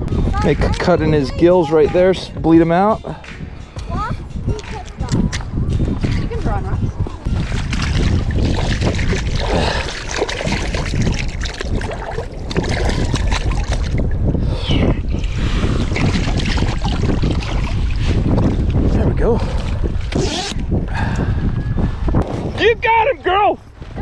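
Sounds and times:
wind buffeting microphone: 0.0s - 24.0s
water splashing and sloshing: 3.2s - 20.7s.

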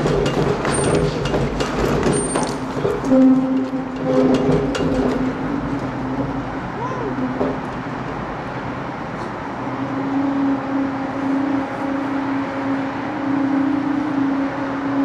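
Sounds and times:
hydraulic machinery humming: 0.0s - 15.0s.

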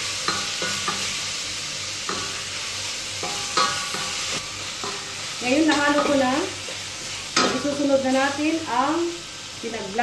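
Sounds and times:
vegetables sizzling in hot oil: 0.0s - 10.0s.

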